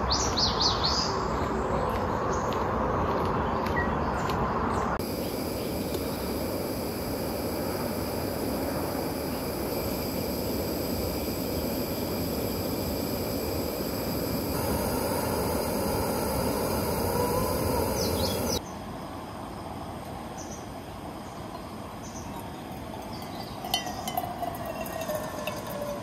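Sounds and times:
wind rustling through trees: 0.0s - 25.4s
bird chirps: 17.0s - 18.8s
water trickling into a mug: 22.3s - 26.0s
light clinks of a mug: 22.4s - 26.0s.

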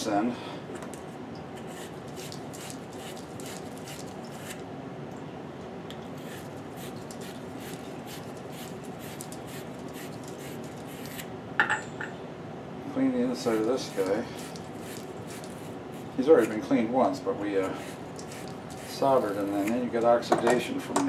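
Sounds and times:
steady background hiss: 0.0s - 21.0s
tools scratching on workbench: 1.6s - 4.6s, 6.2s - 11.3s, 13.4s - 16.7s, 17.6s - 19.9s.

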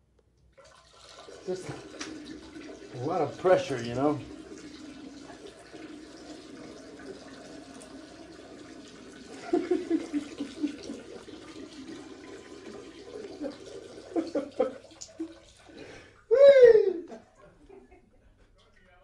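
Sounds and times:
running water: 0.5s - 17.8s
person laughing: 9.3s - 11.1s, 13.4s - 14.9s, 16.3s - 18.4s.

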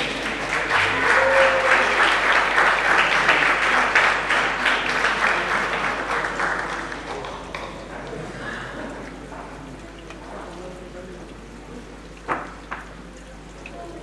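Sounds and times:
crowd applauding: 0.0s - 7.9s.

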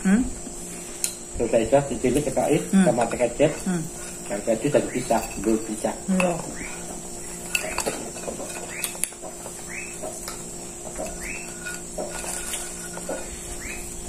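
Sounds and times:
high-pitched insect drone: 0.0s - 14.0s
cutlery clicking on plates: 7.4s - 13.3s.

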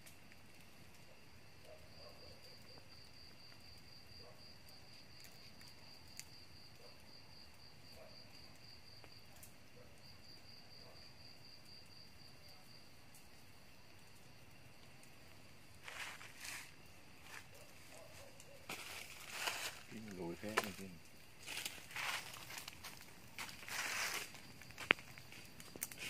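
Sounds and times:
cricket trilling: 0.0s - 26.0s
insect chorus: 0.0s - 26.0s
faint handling ticks: 15.8s - 26.0s.

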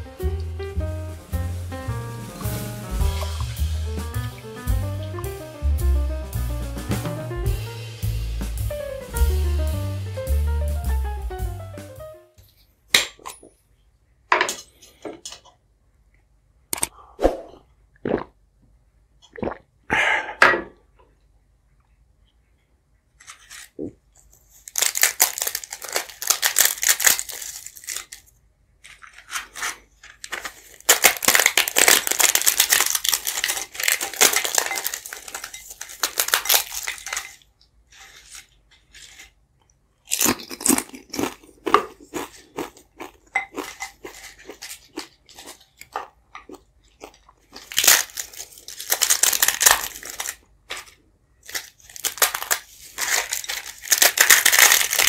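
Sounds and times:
dry flatbread crackling: 23.2s - 39.4s, 47.5s - 55.0s.

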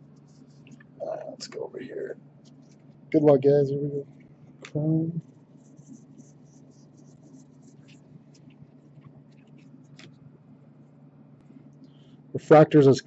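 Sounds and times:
low steady hum: 0.0s - 13.0s
trading cards sliding and rustling: 5.6s - 10.2s.

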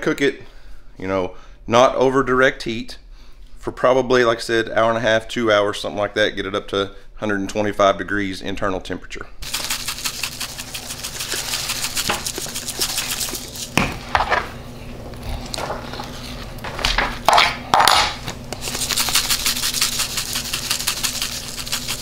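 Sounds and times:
seasoning shaker rattling: 9.4s - 13.8s, 18.5s - 22.0s.

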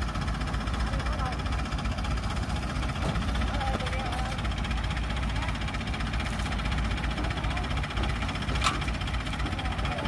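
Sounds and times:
diesel engine rumbling: 0.0s - 10.0s.

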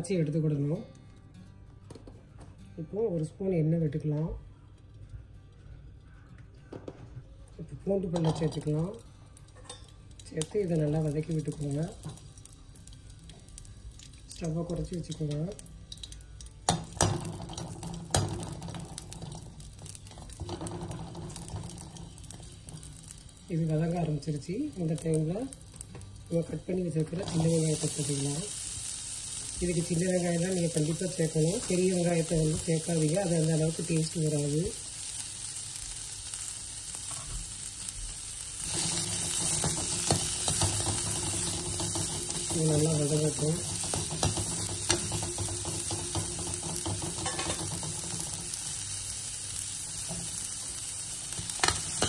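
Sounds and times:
food sauteing in oil: 10.5s - 52.0s
metal spoon knocking against pan: 43.8s - 48.3s.

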